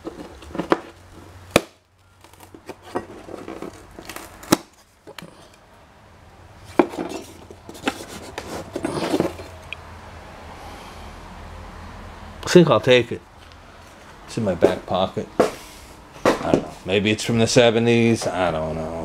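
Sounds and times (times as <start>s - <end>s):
rustling: 2.0s - 5.6s, 6.6s - 9.8s.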